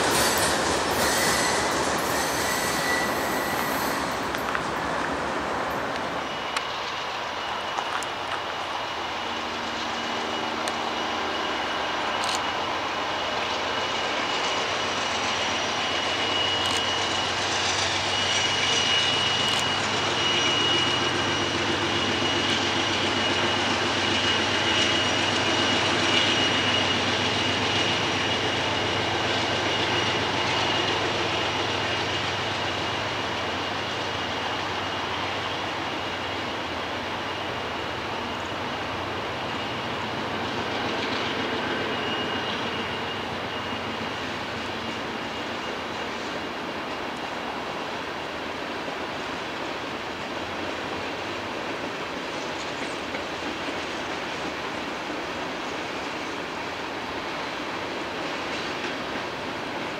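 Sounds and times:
thin high whine: 0:00.0 - 0:32.8
train wheels rumbling on rail: 0:00.0 - 0:59.9.

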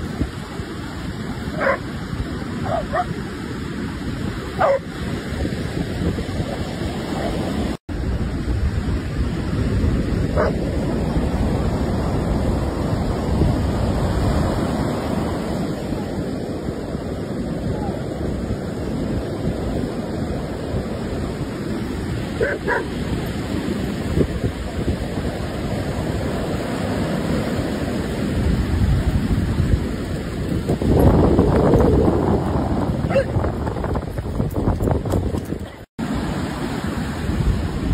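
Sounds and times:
ocean surf washing onto beach: 0:00.0 - 0:37.9
dog barking: 0:01.5 - 0:01.8, 0:02.6 - 0:03.2, 0:04.6 - 0:04.9, 0:10.4 - 0:10.6, 0:22.4 - 0:22.9, 0:33.1 - 0:33.4.

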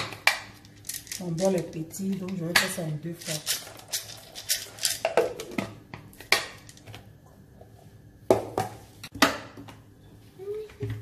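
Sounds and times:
kitchenware clattering: 0:00.0 - 0:07.0.

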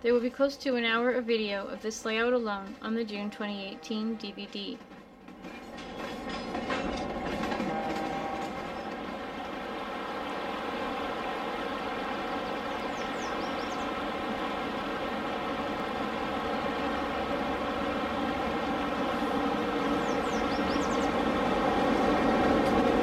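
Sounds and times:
model train rolling rumble: 0:00.2 - 0:23.0.

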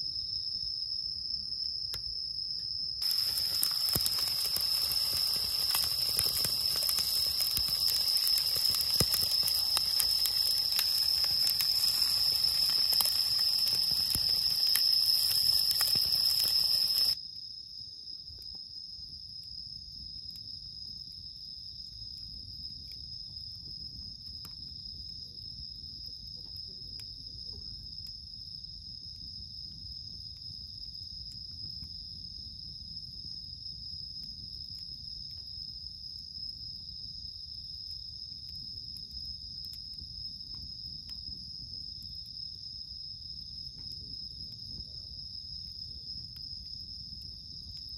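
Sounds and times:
night insects chirring: 0:00.0 - 0:47.9
fire crackling: 0:03.0 - 0:17.2
food sizzling in a pan: 0:03.0 - 0:17.2.

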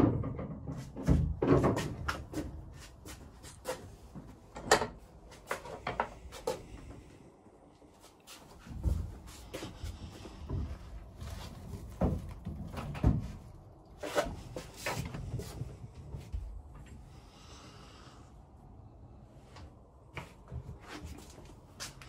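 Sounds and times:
objects knocking and thumping: 0:00.0 - 0:02.7, 0:10.4 - 0:16.5.

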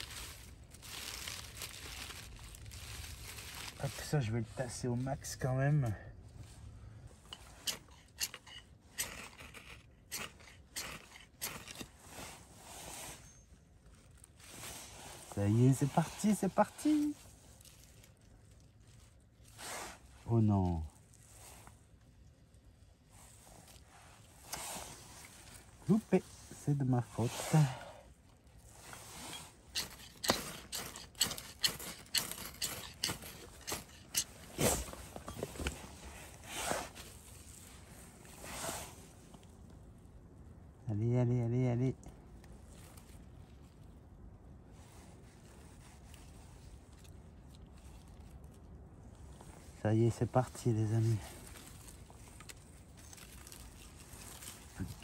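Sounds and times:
knife rasping on ferrocerium rod: 0:07.3 - 0:11.9, 0:29.2 - 0:34.8.

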